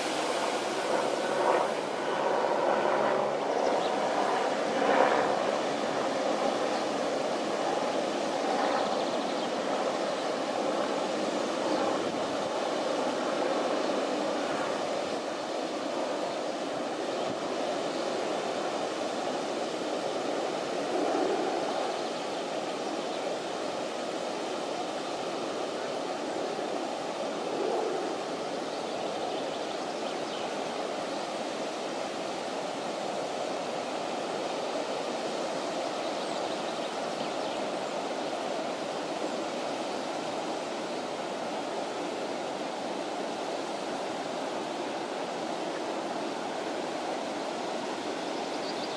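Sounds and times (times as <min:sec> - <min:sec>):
floodwater rushing: 0:00.0 - 0:02.6.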